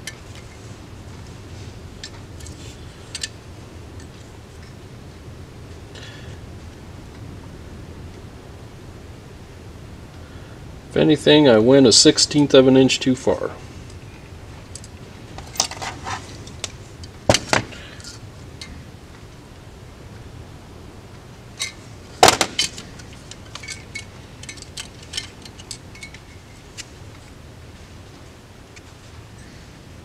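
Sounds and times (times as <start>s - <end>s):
loud metal clack: 17.3s - 17.8s, 21.6s - 22.9s
small metal clicks and clinks: 22.4s - 26.9s.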